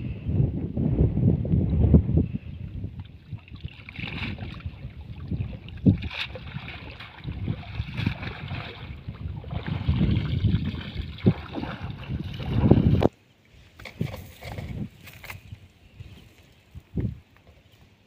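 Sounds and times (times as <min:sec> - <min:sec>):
wind buffeting microphone: 0:00.0 - 0:13.2, 0:13.8 - 0:17.3
water sloshing and splashing: 0:03.0 - 0:13.2, 0:13.8 - 0:15.5.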